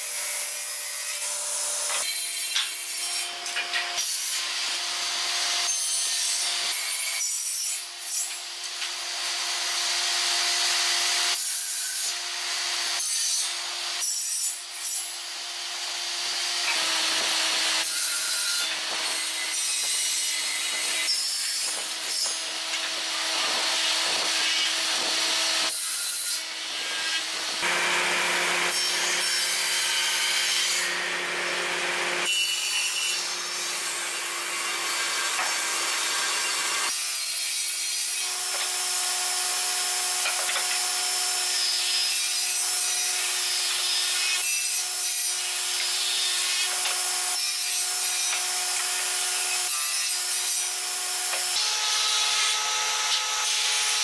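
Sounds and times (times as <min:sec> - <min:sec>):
machine cutting wood: 0:15.6 - 0:54.0
woodworking machine motor whine: 0:26.9 - 0:29.2.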